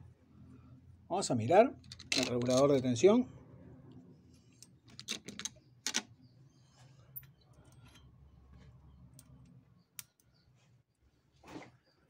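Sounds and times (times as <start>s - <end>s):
metal parts clicking and knocking: 1.8s - 2.9s, 4.6s - 6.2s.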